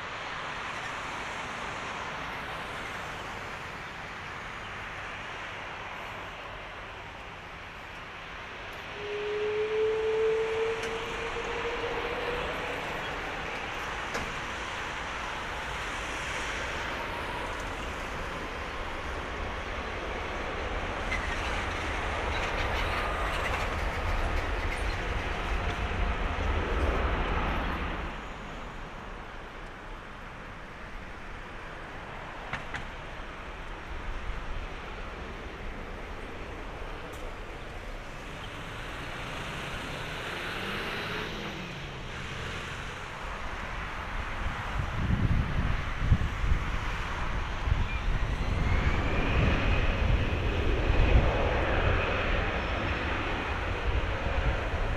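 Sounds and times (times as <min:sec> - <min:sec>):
jet engines running: 0:10.5 - 0:54.9
jet engines whining: 0:45.2 - 0:54.9.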